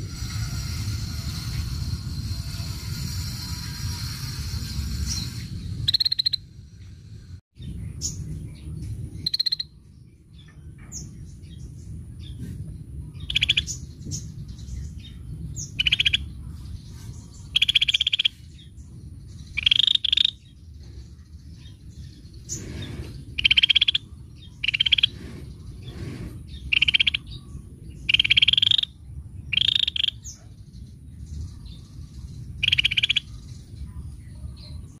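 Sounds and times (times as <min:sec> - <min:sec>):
songbird rattling call: 0:00.0 - 0:06.6, 0:09.2 - 0:09.8, 0:13.1 - 0:33.8
low rumble: 0:00.0 - 0:17.7
high bird chirps: 0:04.1 - 0:06.6, 0:07.7 - 0:12.4, 0:13.2 - 0:33.8.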